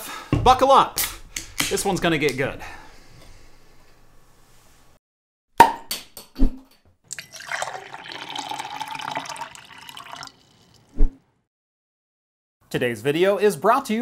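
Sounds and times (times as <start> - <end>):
running liquid: 7.1 - 11.0.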